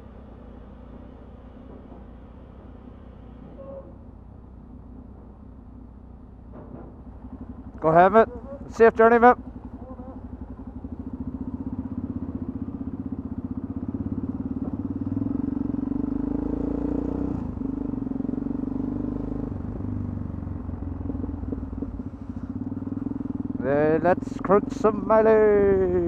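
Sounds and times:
motorcycle engine pulling away: 9.5s - 26.0s.

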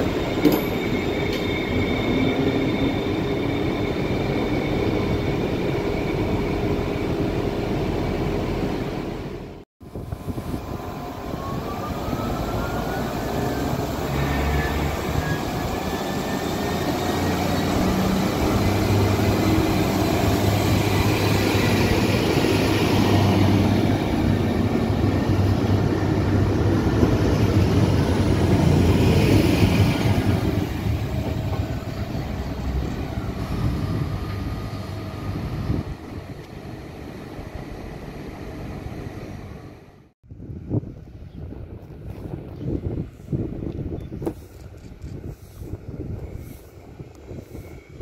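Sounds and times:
diesel train engines running: 0.0s - 40.1s
rising whine: 9.9s - 36.6s.

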